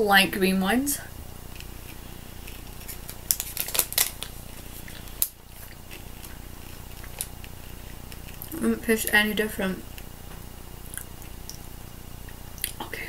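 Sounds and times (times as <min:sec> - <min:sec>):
plastic wrapper crinkling: 0:01.5 - 0:08.6.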